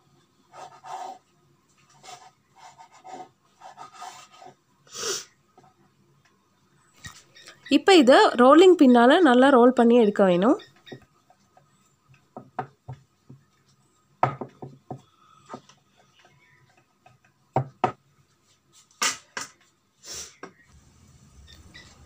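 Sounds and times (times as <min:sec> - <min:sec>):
rolling pin knocking on wooden board: 0:12.3 - 0:13.4, 0:14.2 - 0:15.7, 0:17.1 - 0:18.0.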